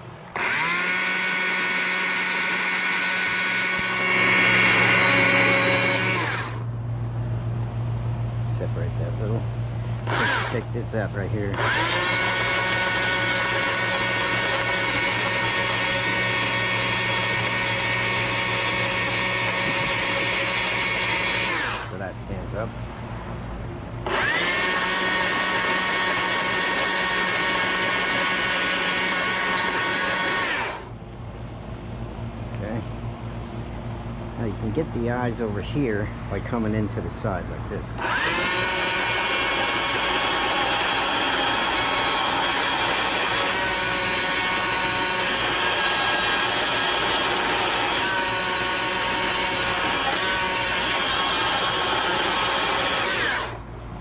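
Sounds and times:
chainsaw carving wood: 0:00.0 - 0:06.7, 0:10.0 - 0:10.9, 0:11.5 - 0:22.0, 0:24.0 - 0:30.9, 0:38.0 - 0:53.7.

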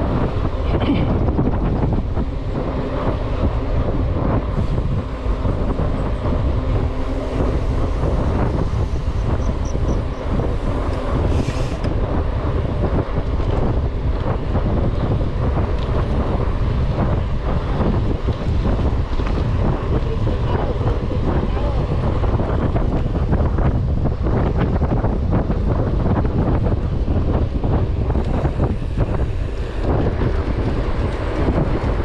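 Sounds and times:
wind buffeting the microphone: 0:00.0 - 0:32.0.

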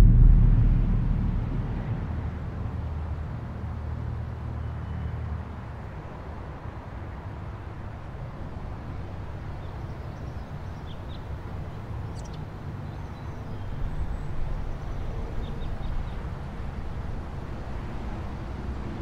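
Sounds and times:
distant traffic rumble: 0:00.0 - 0:04.8.

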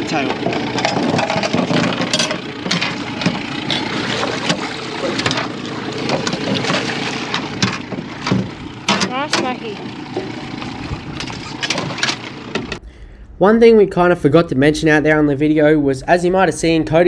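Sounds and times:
gear knocking on metal deck: 0:00.0 - 0:12.8
water splashing: 0:00.0 - 0:12.8
wind on microphone: 0:10.7 - 0:11.6.

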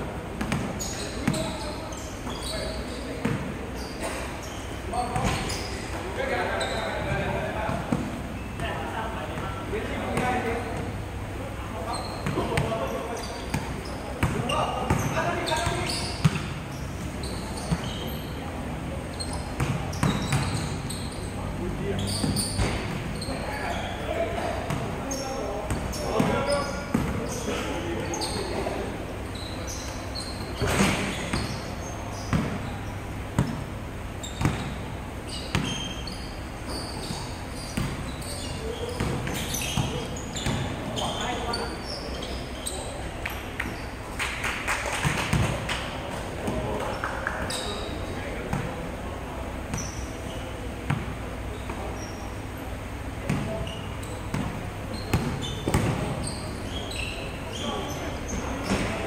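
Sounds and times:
sneakers squeaking: 0:00.0 - 0:59.0
basketball bouncing on wooden court: 0:00.4 - 0:01.6, 0:03.2 - 0:03.5, 0:13.5 - 0:16.6, 0:19.2 - 0:21.0, 0:24.7 - 0:24.9, 0:32.2 - 0:32.7, 0:34.2 - 0:36.0, 0:37.0 - 0:38.2, 0:38.8 - 0:40.8, 0:45.0 - 0:45.6, 0:50.9 - 0:51.1, 0:53.3 - 0:53.7, 0:54.3 - 0:56.4
basketball bouncing on court: 0:00.4 - 0:02.4, 0:03.2 - 0:04.2, 0:05.1 - 0:05.6, 0:12.0 - 0:12.8, 0:13.4 - 0:18.3, 0:19.2 - 0:21.1, 0:22.1 - 0:23.3, 0:24.6 - 0:25.0, 0:25.7 - 0:27.4, 0:29.7 - 0:41.2, 0:45.0 - 0:45.6, 0:50.9 - 0:52.2, 0:53.2 - 0:56.4.

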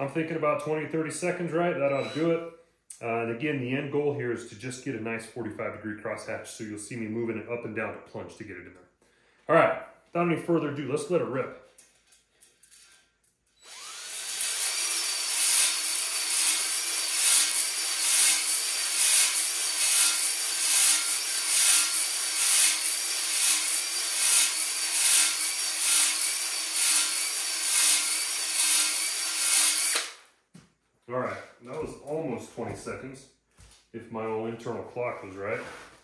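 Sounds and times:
drill spinning a cylinder hone: 0:13.6 - 0:30.2.

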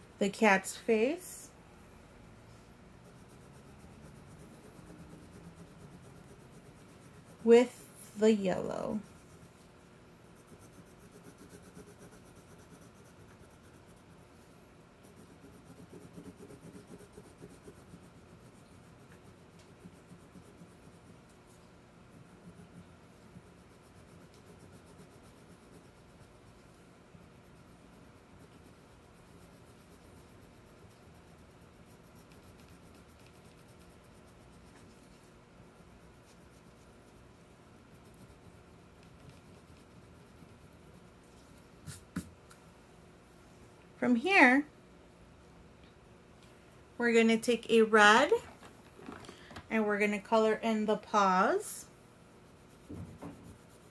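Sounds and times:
wax crayon scratching on paper: 0:02.9 - 0:42.3, 0:47.1 - 0:48.6, 0:50.0 - 0:53.9.

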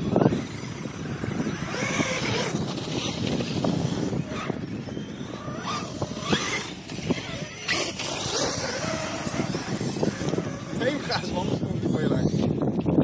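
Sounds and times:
electric motors whining: 0:00.0 - 0:12.9.

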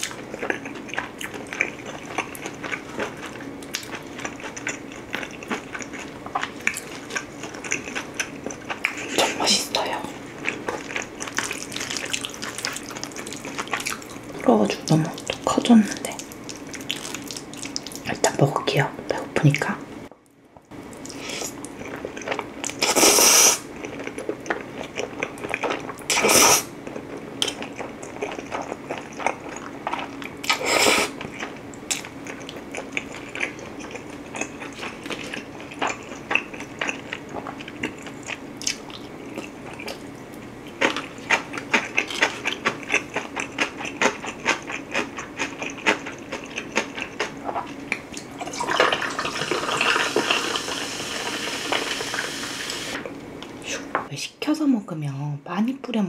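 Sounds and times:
chewing with wet mouth clicks: 0:00.0 - 0:09.2, 0:10.4 - 0:18.1, 0:23.8 - 0:26.2, 0:26.8 - 0:30.6, 0:31.2 - 0:49.0
loud slurps: 0:22.8 - 0:23.6, 0:26.1 - 0:26.7
soda pouring and fizzing: 0:48.4 - 0:52.9.

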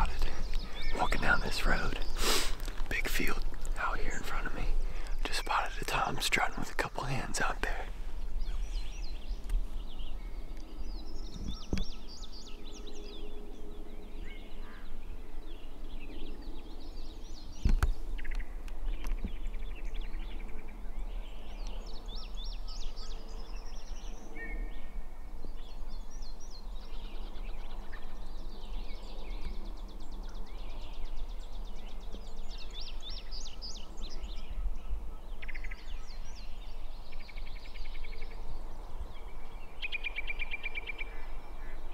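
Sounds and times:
steady low rumble: 0:00.0 - 0:22.5
songbirds chirping and trilling: 0:00.0 - 0:41.9.

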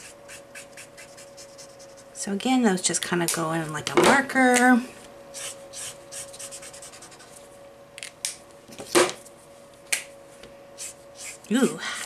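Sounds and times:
marker scratching on paper: 0:00.0 - 0:02.0, 0:05.4 - 0:07.3.

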